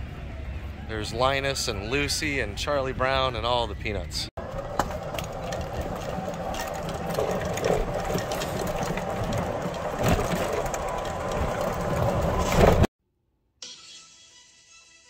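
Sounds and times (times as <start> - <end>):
cart knocks and rattles: 4.4 - 12.9
golf cart motor whine: 4.4 - 12.9.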